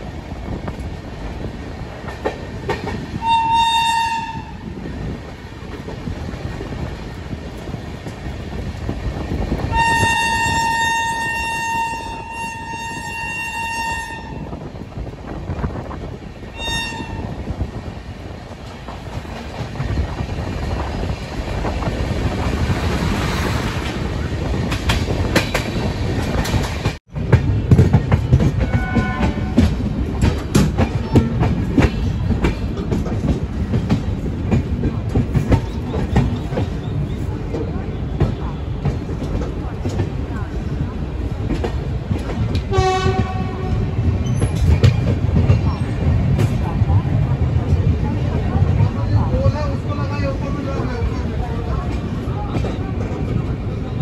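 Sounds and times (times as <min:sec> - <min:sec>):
train wheels rumbling on rails: 0:00.0 - 0:54.0
locomotive horn blasts: 0:03.2 - 0:04.6, 0:09.7 - 0:14.5, 0:16.6 - 0:17.4, 0:28.6 - 0:29.6, 0:42.7 - 0:43.8.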